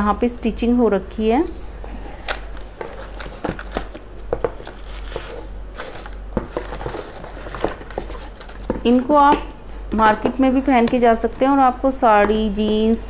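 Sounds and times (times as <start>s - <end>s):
tissue paper and cardboard rustling: 4.6s - 8.7s.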